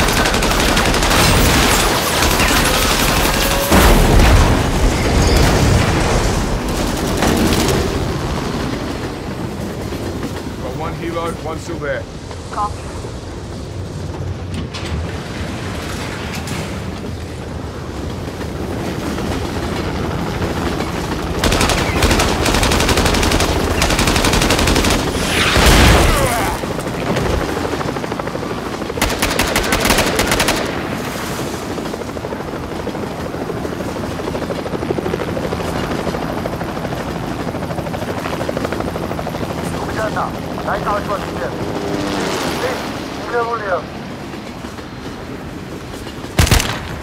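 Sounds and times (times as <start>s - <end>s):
helicopter low rumble: 0.0s - 47.0s
automatic gunfire bursts: 29.0s - 30.7s, 46.4s - 47.0s.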